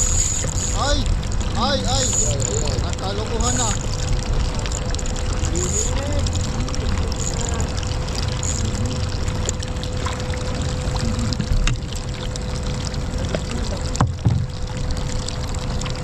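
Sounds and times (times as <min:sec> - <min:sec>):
faint steady hum: 0:00.0 - 0:16.0
water trickling and pouring: 0:00.0 - 0:16.0
small knocks: 0:14.0 - 0:14.6.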